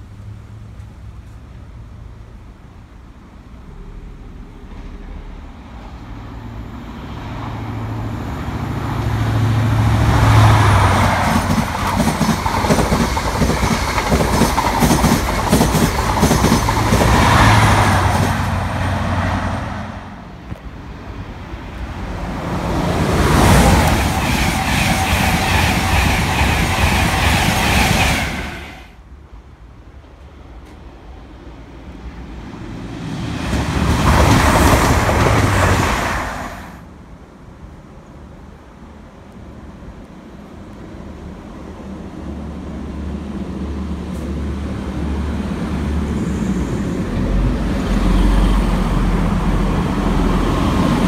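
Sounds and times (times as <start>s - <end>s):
diesel train engine hum: 0.0s - 51.0s
loud rushing noise: 3.6s - 20.5s, 21.3s - 29.0s
coaches clattering over rail joints: 10.8s - 18.7s.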